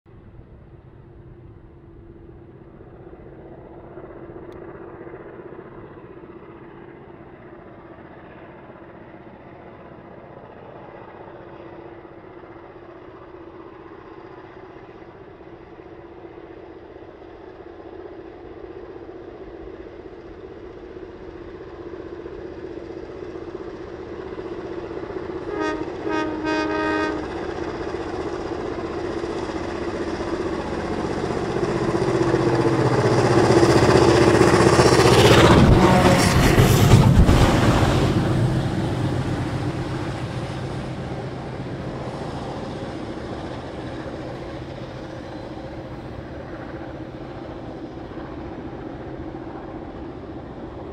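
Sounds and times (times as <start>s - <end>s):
diesel locomotive engines droning: 0.1s - 50.9s
locomotive horn blast: 25.4s - 27.4s, 35.4s - 36.9s.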